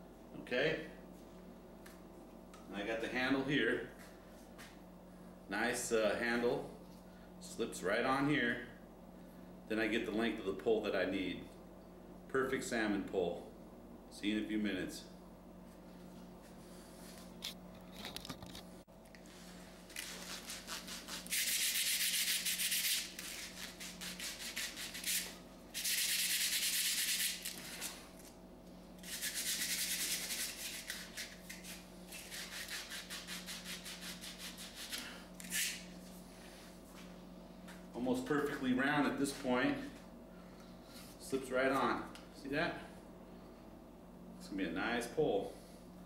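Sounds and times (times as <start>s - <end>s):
sandpaper scratching on rod: 20.0s - 27.6s, 29.0s - 35.8s.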